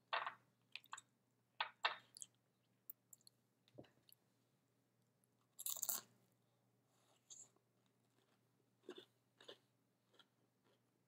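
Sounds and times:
food crunching: 0:05.6 - 0:06.1, 0:07.3 - 0:10.9
chewing sounds: 0:08.1 - 0:10.8.

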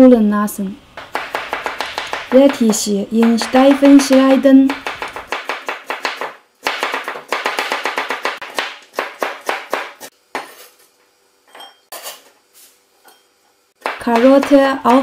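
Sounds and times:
cleaver chopping on cutting board: 0:01.0 - 0:10.6, 0:13.8 - 0:15.0.

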